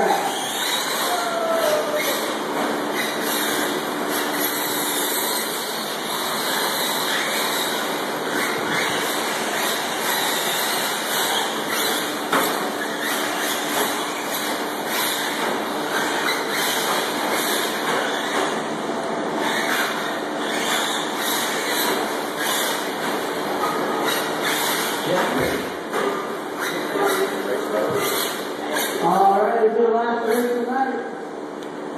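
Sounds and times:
rc truck motors whirring: 0.1s - 18.5s, 19.4s - 25.6s.

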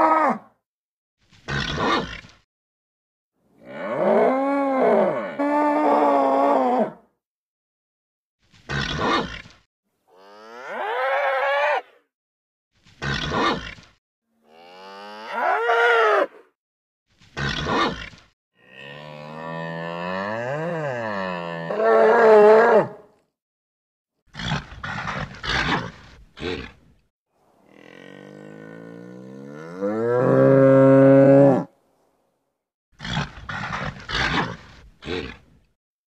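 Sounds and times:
bull mooing: 18.7s - 23.0s, 27.6s - 31.7s.

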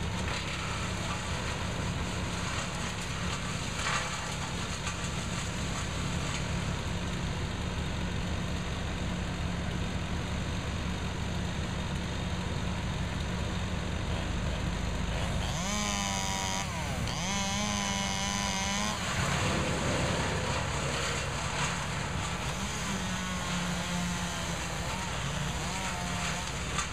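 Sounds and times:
wood chipper engine drone: 0.0s - 26.9s
chainsaw revving: 15.1s - 26.9s
saws idling: 15.2s - 26.9s.

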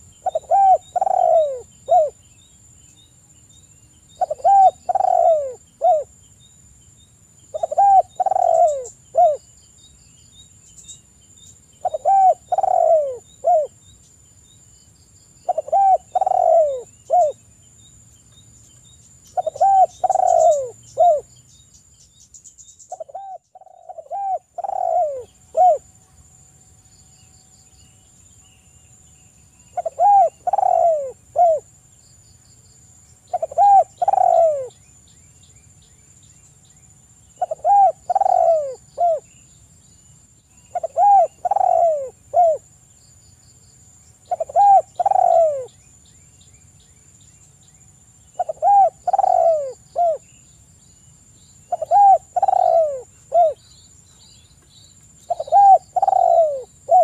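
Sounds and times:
dove cooing: 0.0s - 2.2s, 4.2s - 6.1s, 7.5s - 9.4s, 11.8s - 13.8s, 15.4s - 17.4s, 19.4s - 21.3s, 22.9s - 25.9s, 29.7s - 31.7s, 33.3s - 34.7s, 37.4s - 39.3s, 40.7s - 42.6s, 44.3s - 45.7s, 48.4s - 50.2s, 51.7s - 53.6s, 55.3s - 57.0s.

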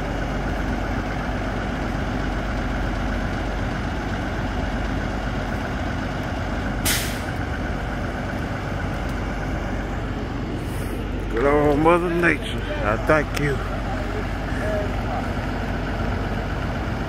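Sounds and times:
truck diesel engines idling: 0.0s - 17.0s
air release hiss: 6.8s - 7.3s.

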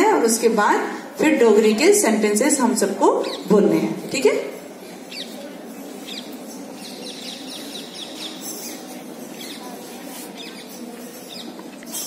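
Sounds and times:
steady background noise: 0.0s - 12.0s
small birds chirping: 4.9s - 12.0s.

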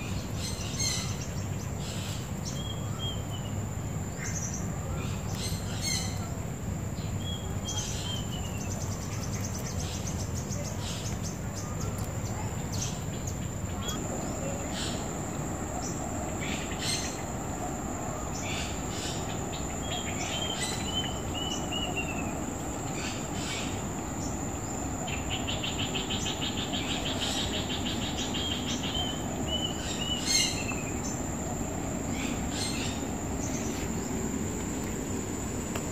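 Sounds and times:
birds chirping: 0.0s - 35.9s
low background hum: 0.0s - 35.9s
bird trill: 15.8s - 31.2s.

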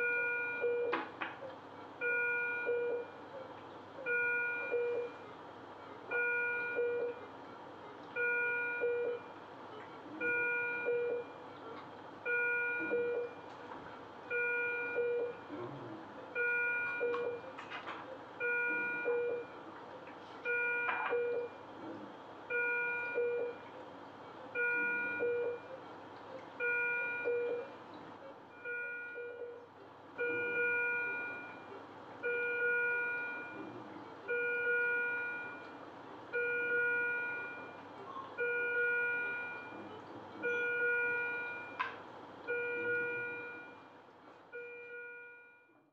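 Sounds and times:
patient monitor alarm chime: 0.0s - 1.0s, 2.0s - 3.2s, 4.0s - 5.2s, 6.1s - 7.2s, 8.2s - 9.4s, 10.2s - 11.4s, 12.3s - 13.4s, 14.3s - 15.5s, 16.4s - 17.6s, 18.4s - 19.6s, 20.5s - 21.6s, 22.5s - 23.6s, 24.6s - 25.8s, 26.6s - 27.8s, 28.5s - 29.6s, 30.2s - 33.7s, 34.3s - 35.7s, 36.4s - 37.8s, 38.4s - 41.8s, 42.5s - 43.8s, 44.5s - 45.7s.

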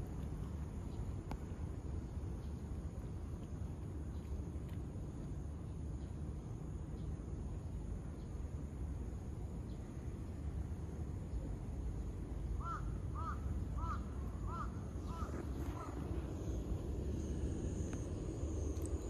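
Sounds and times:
low outdoor rumble: 0.0s - 19.0s
crow cawing: 12.6s - 16.0s.

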